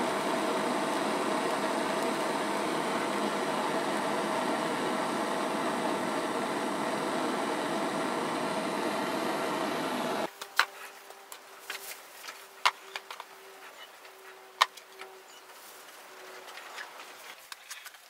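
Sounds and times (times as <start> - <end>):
blowtorch flame hissing: 0.0 - 10.3.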